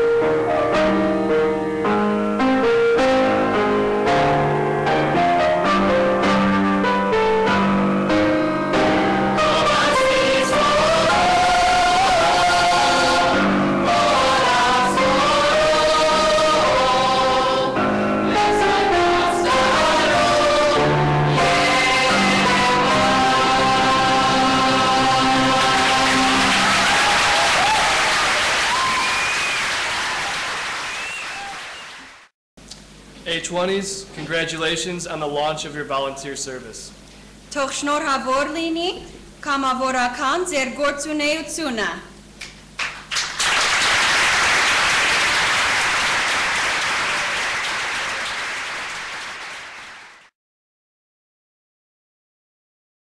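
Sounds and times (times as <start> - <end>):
choir holding final chord: 8.7 - 28.1
audience applauding: 25.1 - 32.3, 42.4 - 50.3
audience whooping: 25.5 - 32.3, 43.2 - 50.2.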